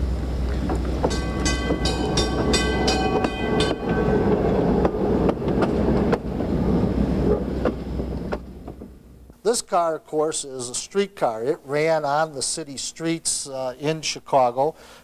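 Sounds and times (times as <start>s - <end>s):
streetcar warning gong clanging: 0.0s - 9.2s
streetcar wheels rumbling: 0.0s - 9.3s
wheels clicking over rail joints: 0.4s - 6.6s.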